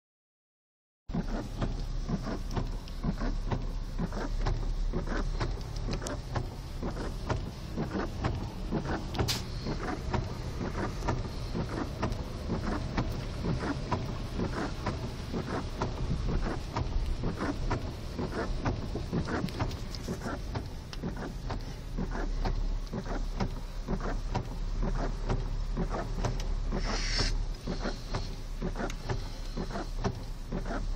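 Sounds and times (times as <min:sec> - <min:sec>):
low rumble of car: 0:01.1 - 0:30.9
rain and water thudding on car: 0:01.1 - 0:30.9
brief hiss: 0:09.3 - 0:09.6, 0:26.8 - 0:27.4.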